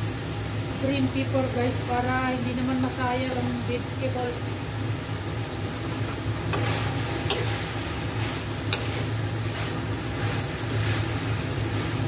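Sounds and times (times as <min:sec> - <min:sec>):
steady low hum: 0:00.0 - 0:12.0
vegetables sizzling in a wok: 0:00.0 - 0:12.0.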